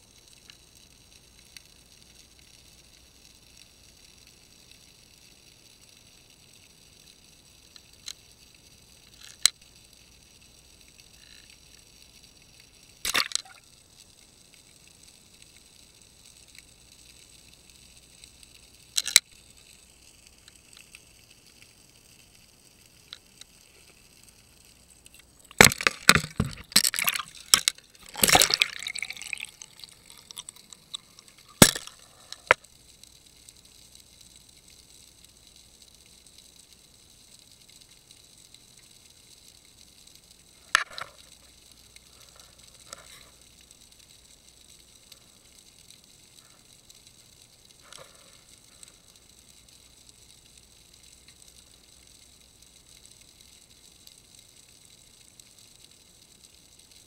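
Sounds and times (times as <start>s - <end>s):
faint steady hum: 0.0s - 57.0s
water sloshing: 25.5s - 31.9s.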